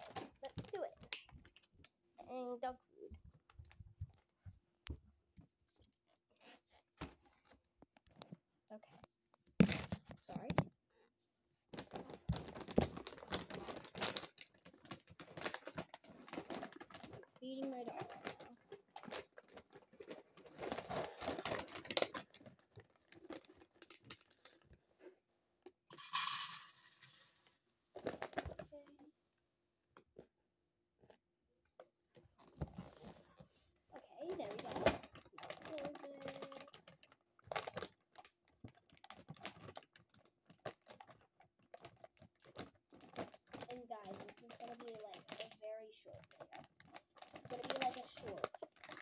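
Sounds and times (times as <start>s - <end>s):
plastic bag crinkling: 11.7s - 24.8s, 28.0s - 28.8s, 34.2s - 49.0s.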